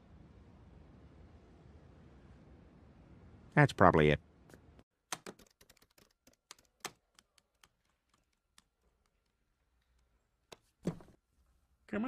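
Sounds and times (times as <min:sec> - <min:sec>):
calculator keys tapping: 0:05.1 - 0:11.0.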